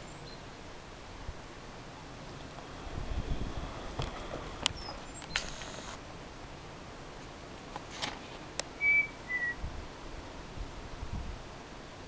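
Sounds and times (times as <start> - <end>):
sharp clicks: 4.0 - 6.0
person whistling: 8.8 - 9.6.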